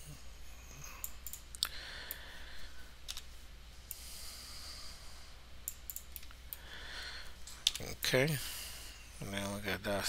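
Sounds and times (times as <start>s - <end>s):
faint low hum: 0.0s - 10.0s
computer mouse clicks: 1.0s - 2.2s, 3.0s - 3.3s, 5.6s - 6.6s.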